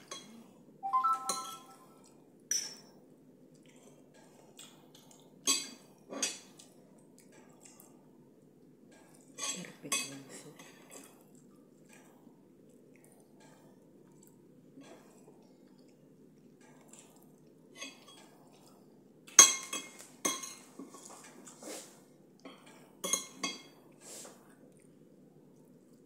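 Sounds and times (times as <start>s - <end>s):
cutlery clinking on a ceramic plate: 19.4s - 20.8s, 22.5s - 23.8s.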